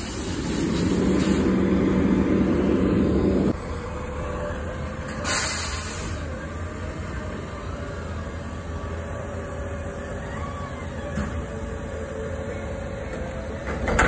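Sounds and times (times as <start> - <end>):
air brakes hissing: 0.0 - 1.6, 5.0 - 6.4
truck diesel engine running: 0.0 - 14.0.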